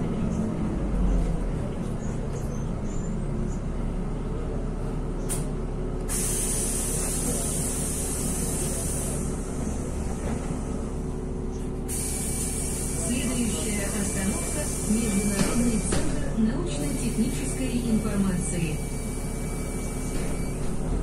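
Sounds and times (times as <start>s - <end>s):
bus engine and road noise: 0.0s - 21.0s
air brake hiss: 6.1s - 9.2s, 11.9s - 13.0s.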